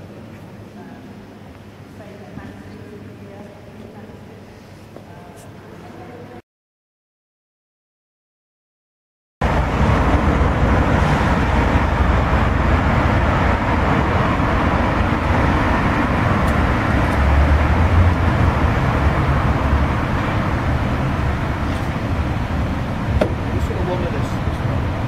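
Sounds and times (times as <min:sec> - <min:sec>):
street noise: 0:00.0 - 0:06.4, 0:09.4 - 0:25.0
diesel engine idling: 0:09.4 - 0:25.0.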